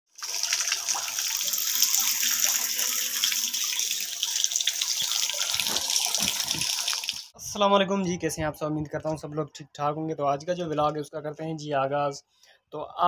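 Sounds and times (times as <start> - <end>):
water gushing from pipe: 0.1 - 7.3.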